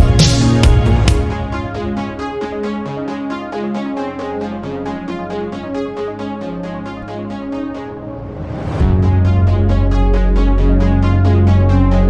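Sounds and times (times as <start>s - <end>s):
heavy bass beat: 0.0s - 3.1s, 8.8s - 12.0s
electronic music with steady beat: 0.0s - 12.0s
rising noise sweep: 7.7s - 11.2s.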